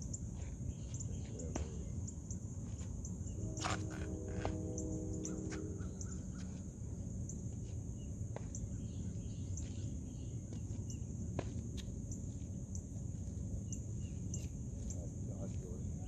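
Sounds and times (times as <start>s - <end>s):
high-pitched insect drone: 0.0s - 10.4s
faint chirps and ticks: 0.0s - 16.0s
low steady rumble: 0.0s - 16.0s.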